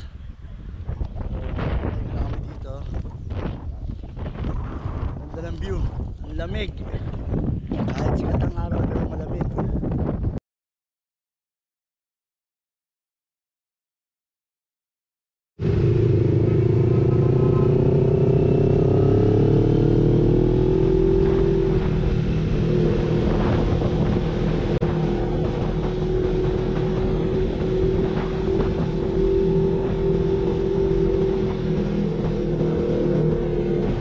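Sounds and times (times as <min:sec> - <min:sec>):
motorcycle engine running: 0:15.6 - 0:34.0.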